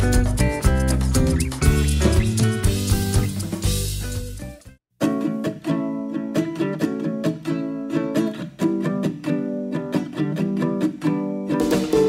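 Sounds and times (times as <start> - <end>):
guitar strumming chords: 5.0 - 12.0.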